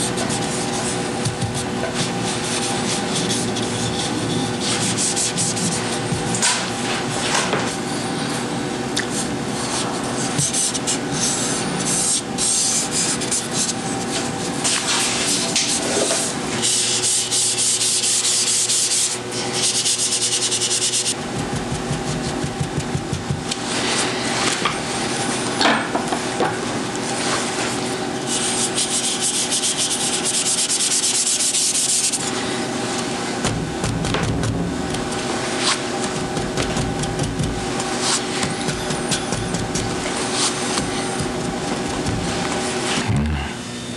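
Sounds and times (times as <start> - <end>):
brush scratching through ink: 0.2 - 6.0, 28.3 - 32.2, 35.5 - 43.0.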